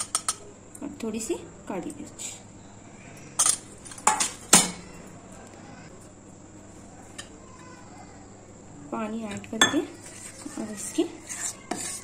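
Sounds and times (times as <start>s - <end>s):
metal clinking against steel bowl: 9.6s - 9.9s.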